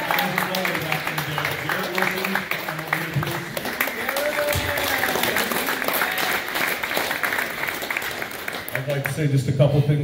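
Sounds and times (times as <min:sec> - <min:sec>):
scattered hand clapping: 0:00.0 - 0:09.2
people talking: 0:08.8 - 0:10.0.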